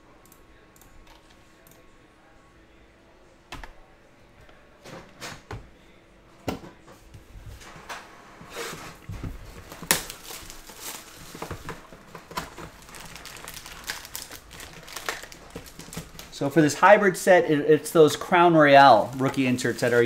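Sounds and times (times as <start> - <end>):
foil wrappers crinkling: 9.6 - 16.5, 18.9 - 20.0.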